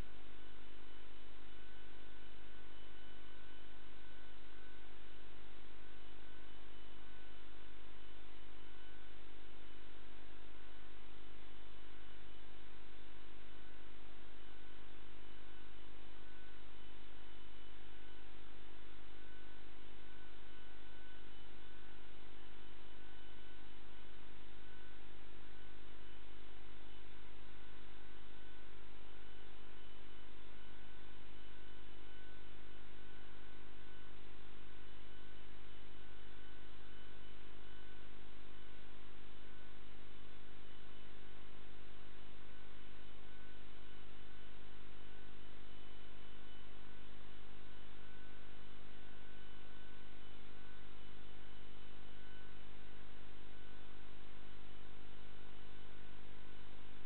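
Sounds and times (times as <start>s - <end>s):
electrical hum with hiss: 0.0s - 57.0s.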